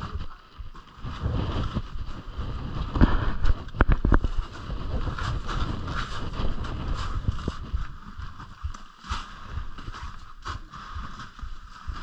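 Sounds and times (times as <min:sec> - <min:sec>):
jacket rustling on microphone: 0:00.0 - 0:12.0.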